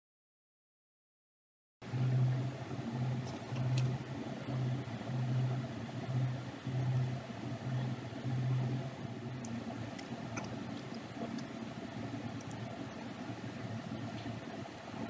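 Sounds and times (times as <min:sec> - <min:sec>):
low machine hum: 0:01.8 - 0:15.0.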